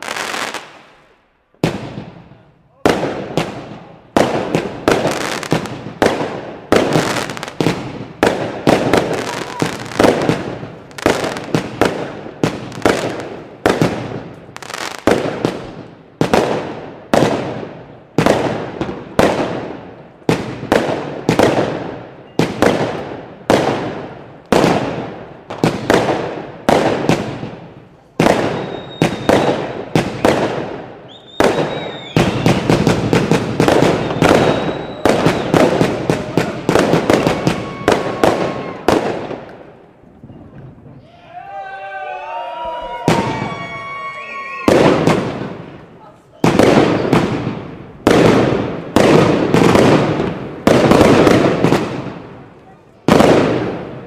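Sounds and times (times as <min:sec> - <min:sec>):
fireworks banging and crackling: 0:00.0 - 0:41.0, 0:42.3 - 0:54.0
firework whistles: 0:09.1 - 0:10.1, 0:28.3 - 0:30.4, 0:31.0 - 0:33.0, 0:33.6 - 0:39.0, 0:46.4 - 0:47.4.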